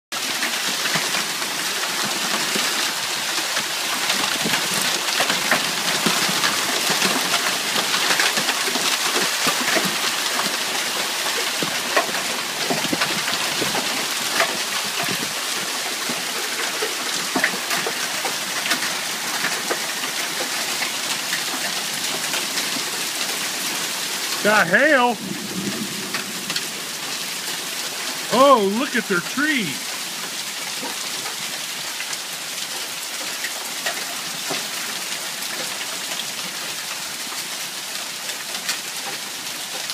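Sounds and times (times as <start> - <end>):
heavy rain hissing: 22.9 - 30.3.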